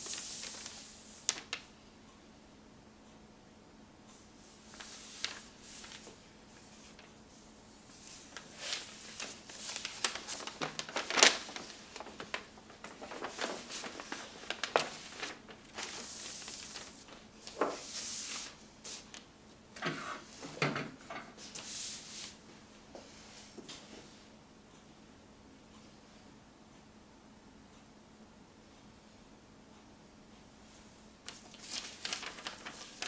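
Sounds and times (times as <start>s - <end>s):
palms swishing across paper: 0.0s - 1.6s, 4.1s - 19.2s, 21.4s - 23.8s, 30.7s - 33.0s
paper map crinkling: 0.0s - 1.7s, 4.6s - 7.2s, 7.8s - 19.3s, 31.2s - 33.0s.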